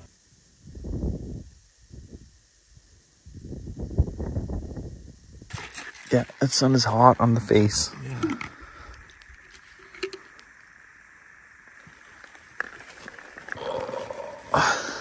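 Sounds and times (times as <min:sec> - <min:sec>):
person swallowing: 0:07.9 - 0:10.4, 0:13.0 - 0:15.0.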